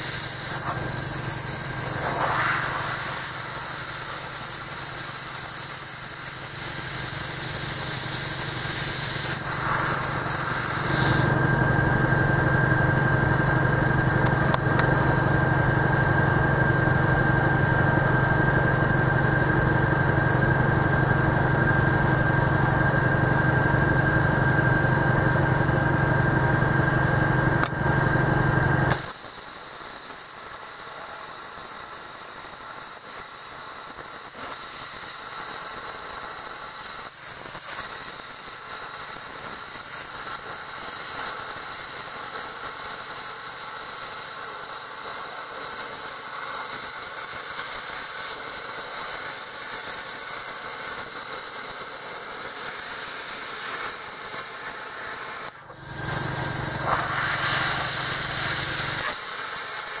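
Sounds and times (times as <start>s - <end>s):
plasma cutter hissing: 0.0s - 11.4s, 28.9s - 60.0s.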